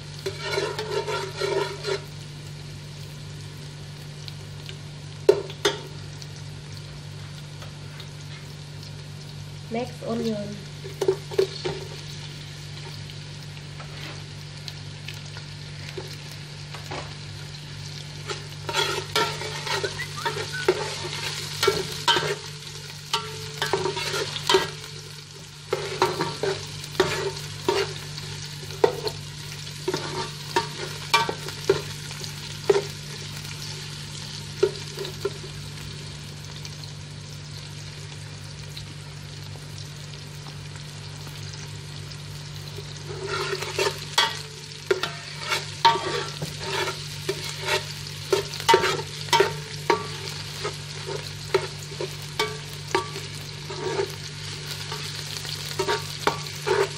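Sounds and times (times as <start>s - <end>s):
food sizzling in oil: 0.0s - 56.9s
metal spoon scraping a pot: 0.2s - 2.1s, 18.3s - 22.4s, 23.2s - 24.8s, 43.1s - 50.1s, 52.4s - 54.2s, 55.8s - 56.9s.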